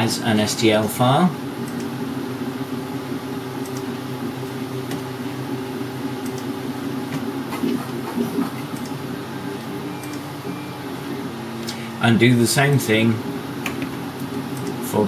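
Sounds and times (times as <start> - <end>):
low machine hum: 0.0 - 15.0
computer mouse clicks: 1.6 - 1.9, 3.6 - 3.9, 6.2 - 6.5, 8.7 - 9.0, 13.6 - 14.8.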